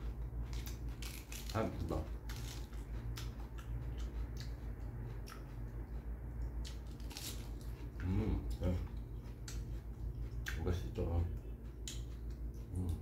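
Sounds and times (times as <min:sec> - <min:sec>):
low steady hum: 0:00.0 - 0:13.0
lettuce crunching: 0:00.5 - 0:03.3, 0:06.6 - 0:07.7.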